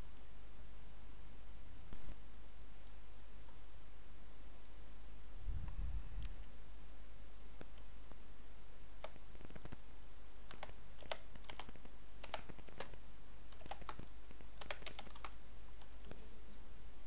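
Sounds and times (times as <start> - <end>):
keyboard keystrokes clicking: 10.5 - 16.2.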